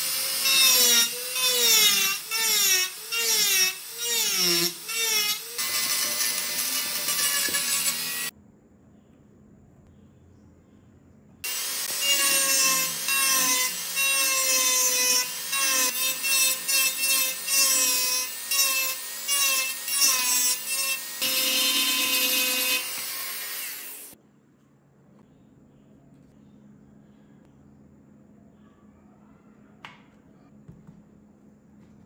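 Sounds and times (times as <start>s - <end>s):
rotary tool grinding wood: 0.0s - 8.3s, 11.5s - 24.2s.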